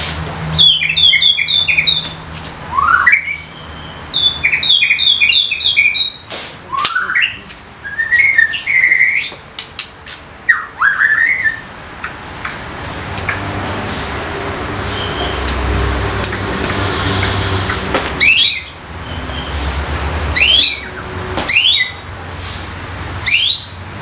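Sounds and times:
bird singing chattering and whistles: 0.6s - 9.9s, 10.5s - 12.2s, 18.2s - 19.5s, 20.4s - 22.0s, 23.2s - 23.8s.

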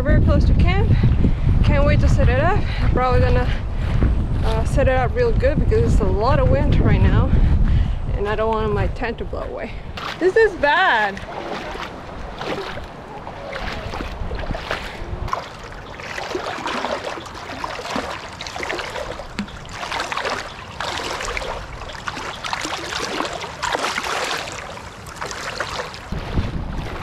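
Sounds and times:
footsteps wading through water: 9.8s - 27.0s.

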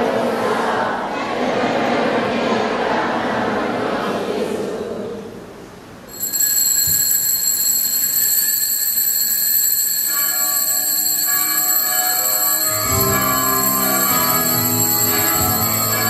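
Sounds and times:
murmur of congregation: 0.0s - 6.1s, 10.3s - 16.0s
small bells ringing: 6.1s - 16.0s
low musical tones: 11.4s - 16.0s.

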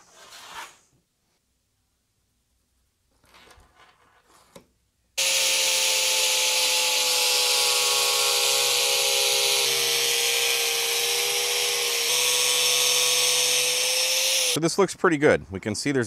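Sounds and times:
angle grinder whine: 5.2s - 14.6s.

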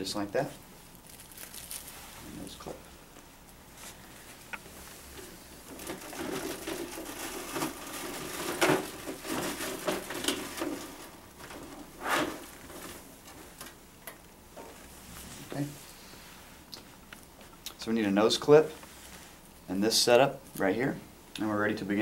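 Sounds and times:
equipment rustling: 1.0s - 2.7s.

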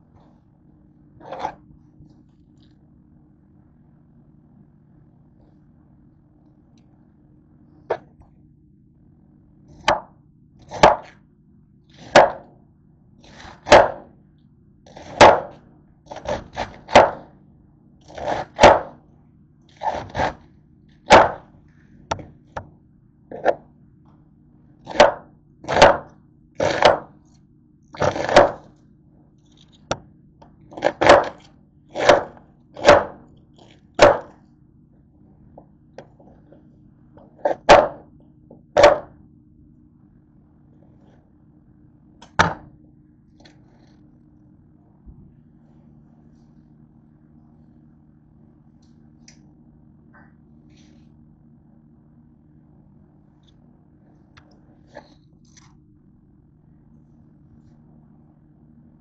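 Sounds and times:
faint low hum: 0.0s - 59.0s
knife slicing cabbage: 11.9s - 12.4s, 13.2s - 14.0s, 14.9s - 17.3s, 18.0s - 19.0s, 19.7s - 20.4s, 24.9s - 27.1s, 28.0s - 28.7s, 30.7s - 34.3s.

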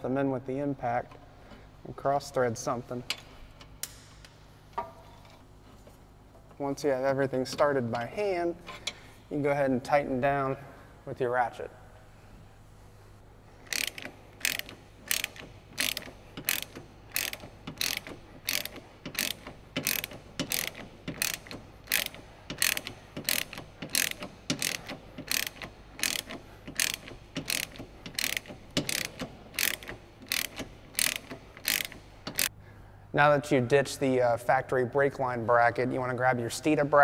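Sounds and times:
socket ratchet clicking: 13.6s - 32.5s.

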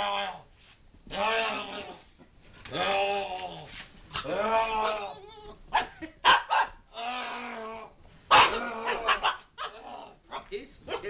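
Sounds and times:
small dog barking and growling: 4.2s - 7.6s, 8.3s - 11.0s.

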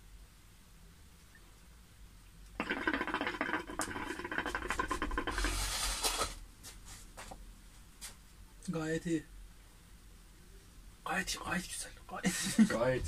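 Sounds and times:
hookah water bubbling: 2.5s - 5.9s.

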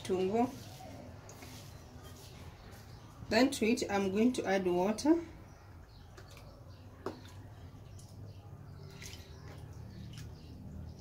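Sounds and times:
splashing and dripping: 6.1s - 11.0s
water pouring onto a plate: 8.8s - 10.4s.

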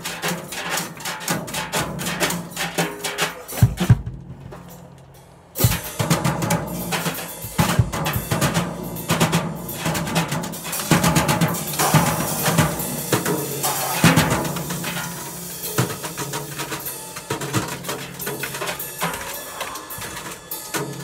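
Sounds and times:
drum hits: 0.0s - 4.8s, 5.6s - 21.0s
cymbals ringing: 4.6s - 21.0s.

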